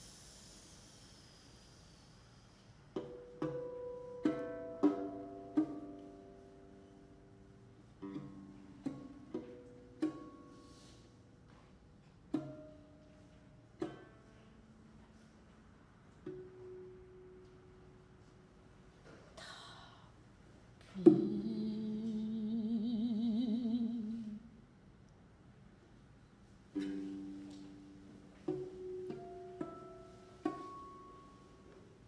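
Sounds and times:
lute plucked notes: 3.0 - 11.3, 21.0 - 24.3, 26.8 - 32.0.

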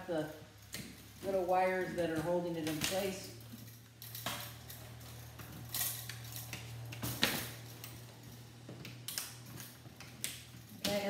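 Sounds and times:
metal clinks and scrapes: 0.0 - 11.0
wire cutters snipping wire: 4.0 - 11.0.

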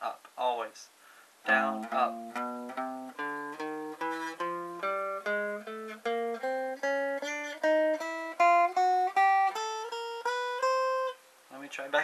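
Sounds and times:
electric guitar picking scale: 1.5 - 11.2.

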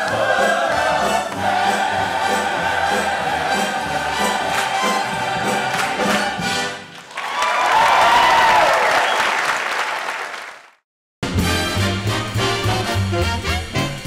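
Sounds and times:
orchestra playing: 0.0 - 7.0, 11.2 - 14.0.

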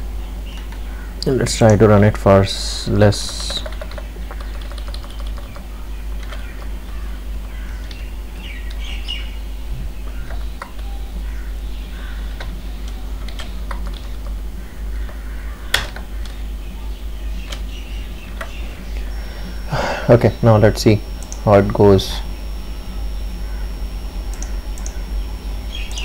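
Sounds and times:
steady low hum: 0.0 - 26.0
keyboard keystrokes: 3.2 - 6.7.

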